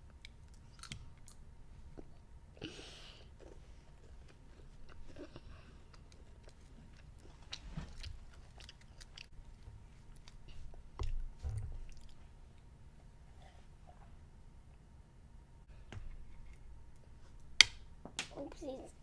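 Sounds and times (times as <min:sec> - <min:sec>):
child chewing crunchy candy: 0:00.1 - 0:02.2, 0:03.1 - 0:12.7.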